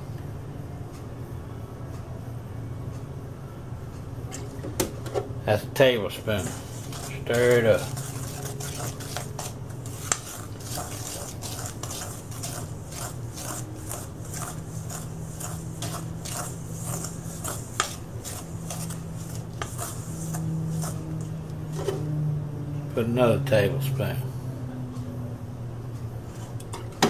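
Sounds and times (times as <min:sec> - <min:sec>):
spoon scraping metal bowl: 0:06.4 - 0:22.0.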